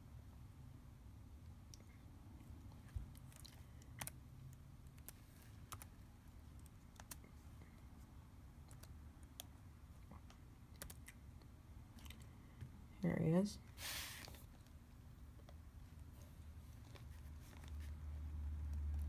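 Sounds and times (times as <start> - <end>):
faint keyboard typing: 1.7 - 12.7.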